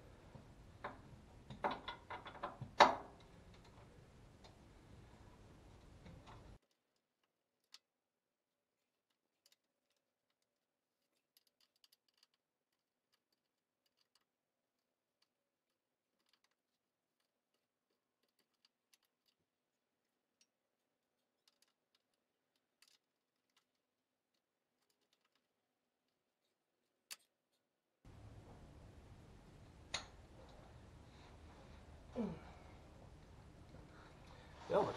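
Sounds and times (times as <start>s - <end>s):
background noise hiss: 0.0s - 6.6s, 28.1s - 34.9s.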